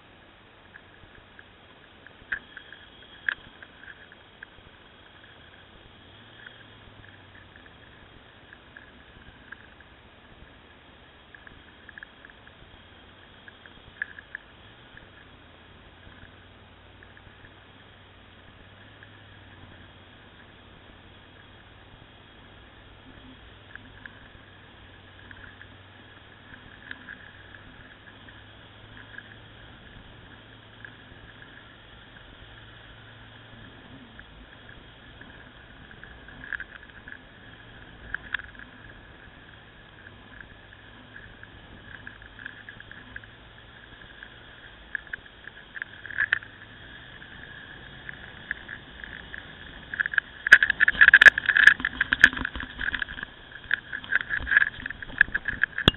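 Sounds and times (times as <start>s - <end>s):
motorcycle engine running: 0.0s - 55.9s
crackling knocks: 44.1s - 55.9s.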